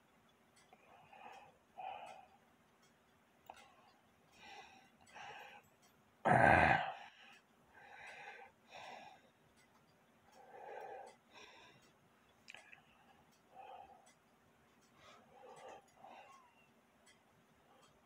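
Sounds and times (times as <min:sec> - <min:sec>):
person breathing: 0:04.3 - 0:05.8, 0:06.4 - 0:09.4, 0:10.3 - 0:14.2, 0:14.8 - 0:16.7.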